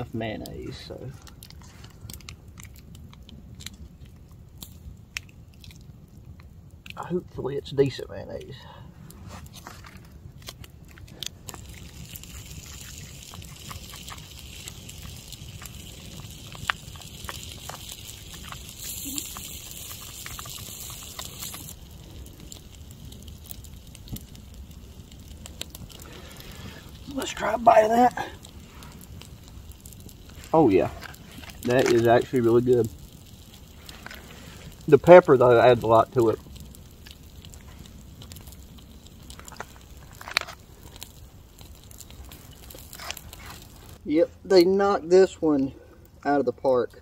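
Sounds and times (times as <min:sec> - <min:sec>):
campfire crackling: 0:00.0 - 0:47.0
foil pouch crinkling: 0:09.3 - 0:44.0.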